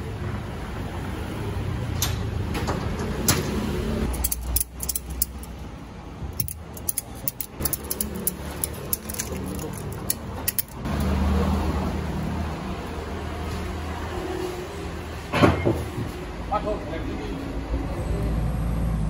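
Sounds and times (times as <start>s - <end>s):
ratchet strap buckle clicking: 4.1s - 5.6s, 6.3s - 10.9s.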